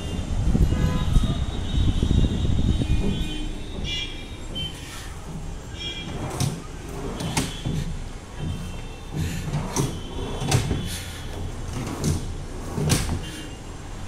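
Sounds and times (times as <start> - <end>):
knocks and clicks on cabinet: 3.0 - 13.4.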